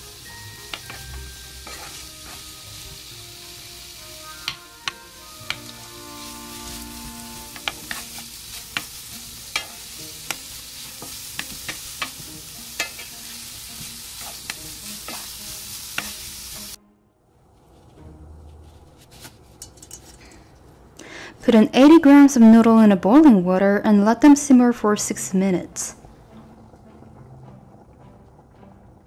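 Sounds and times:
vegetables sizzling in oil: 0:00.0 - 0:16.8.

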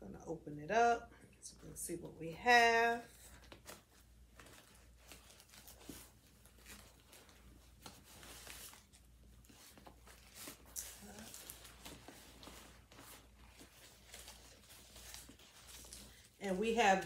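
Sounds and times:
cloth bag rustling: 0:02.6 - 0:17.0.

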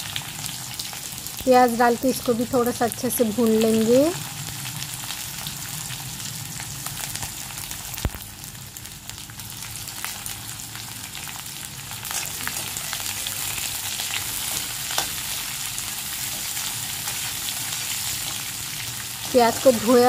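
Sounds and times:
onions sizzling in hot oil: 0:00.0 - 0:20.0.

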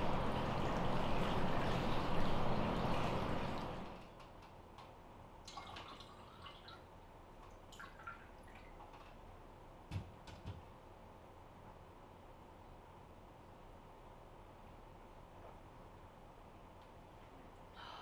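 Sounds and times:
bath water flowing and splashing: 0:00.0 - 0:04.0.

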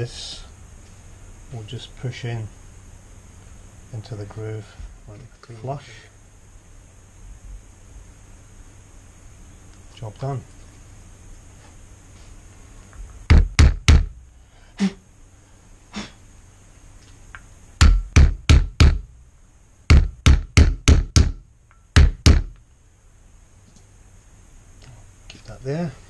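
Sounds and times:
hammer tapping wooden block: 0:13.3 - 0:14.2, 0:17.8 - 0:19.1, 0:19.9 - 0:21.4, 0:22.0 - 0:22.6.

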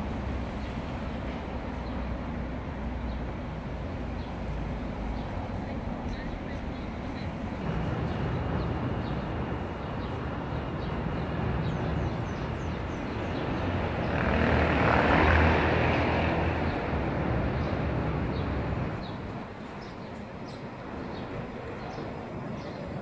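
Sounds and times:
city traffic hum: 0:00.0 - 0:23.0
vehicle passing: 0:07.4 - 0:19.5.

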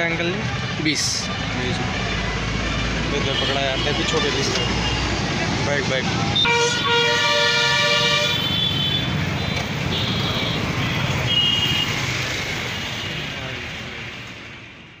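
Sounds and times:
road traffic rumbling: 0:00.0 - 0:15.0
vehicle horn honking: 0:06.4 - 0:12.0.

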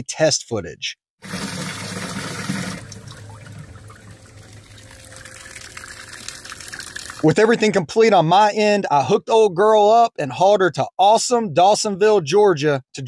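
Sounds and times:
water pouring and splashing: 0:01.2 - 0:07.4
water trickling: 0:01.2 - 0:07.4
low hum: 0:02.8 - 0:07.3.

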